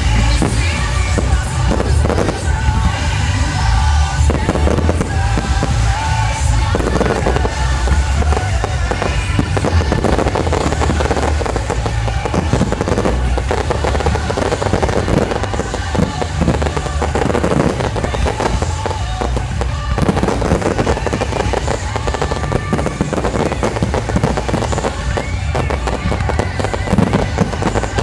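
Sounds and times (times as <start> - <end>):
fireworks bursting and crackling: 0.0 - 28.0
music with steady bass: 0.0 - 28.0.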